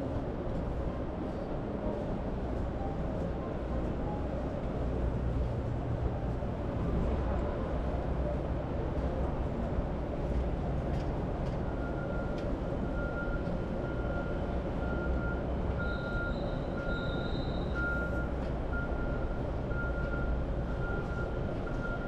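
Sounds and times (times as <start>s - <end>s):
city traffic rumbling: 0.0s - 22.0s
faint high squeal: 15.8s - 17.9s.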